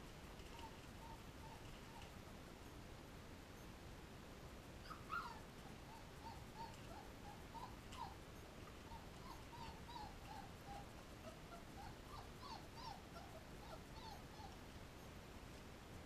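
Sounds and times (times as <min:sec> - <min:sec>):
puppies whimpering: 0:04.8 - 0:08.2, 0:08.8 - 0:14.6.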